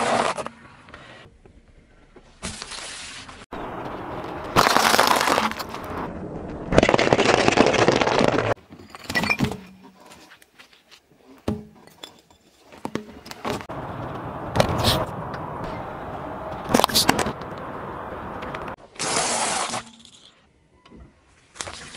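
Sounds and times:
dense crackling under car tyre: 3.4 - 8.6.

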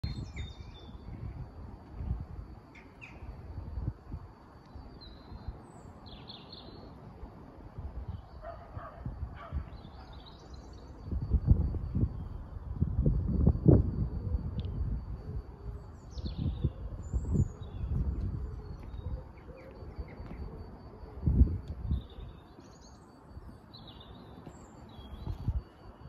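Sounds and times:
birds chirping: 0.0 - 1.2, 2.5 - 3.4, 4.7 - 7.0, 8.0 - 11.1, 15.7 - 21.2, 21.8 - 26.0.

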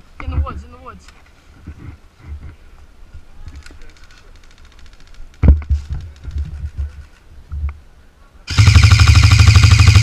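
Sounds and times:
airsoft rifle full-auto burst: 8.5 - 10.0.

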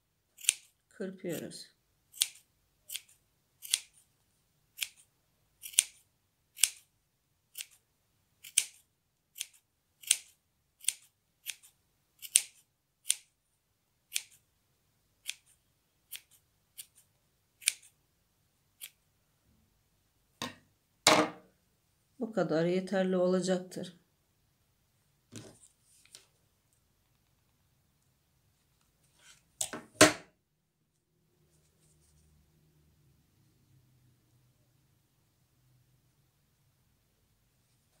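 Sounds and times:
scissors snipping yarn: 0.4 - 1.4, 2.1 - 4.1, 4.8 - 6.9, 7.5 - 7.8, 8.4 - 13.3, 14.1 - 14.4, 15.2 - 18.0.

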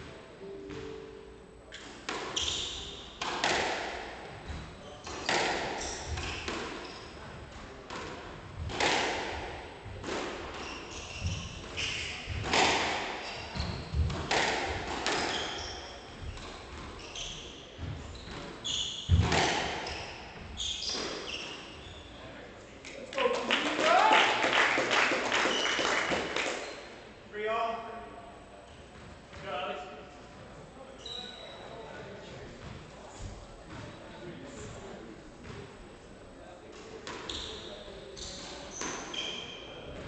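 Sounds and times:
squash ball hitting rackets and walls: 1.7 - 17.1, 17.8 - 21.7
shoes squeaking on hardwood floor: 2.3 - 3.0, 4.4 - 7.4, 10.6 - 12.4, 15.2 - 22.2, 31.0 - 31.9.

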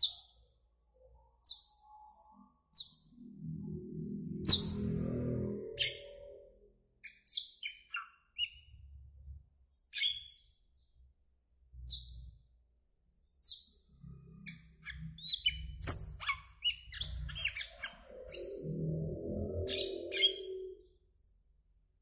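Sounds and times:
starling chirps and whistles: 14.5 - 21.0.

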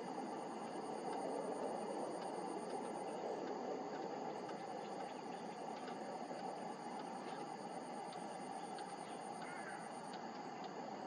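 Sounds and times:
steady low hiss: 0.0 - 11.0
insect trilling: 7.2 - 10.1.

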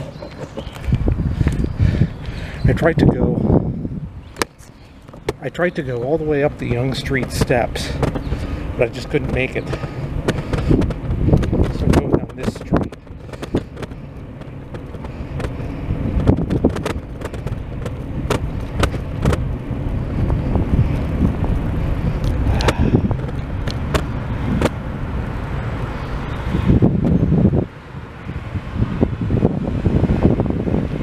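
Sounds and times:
wind on microphone: 0.0 - 5.4, 6.0 - 31.0
traffic rumble: 0.0 - 31.0
footsteps and handling knocks: 4.4 - 15.6, 16.2 - 19.5.

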